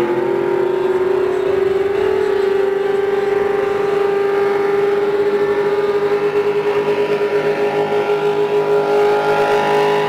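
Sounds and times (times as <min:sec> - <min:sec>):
racing boat engines droning: 0:00.0 - 0:10.0.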